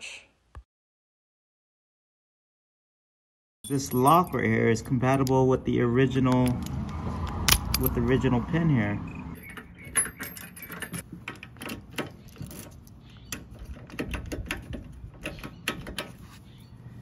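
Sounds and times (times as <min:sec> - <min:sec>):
key ring jingling: 0:03.6 - 0:05.2, 0:09.3 - 0:11.0
metal lock clicks and rattles: 0:03.7 - 0:05.5, 0:06.1 - 0:08.1, 0:09.4 - 0:16.2.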